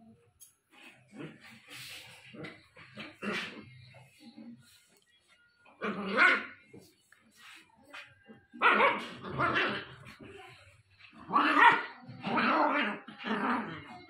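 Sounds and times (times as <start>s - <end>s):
puppy barking: 5.8s - 6.6s, 8.6s - 10.0s, 11.3s - 13.1s.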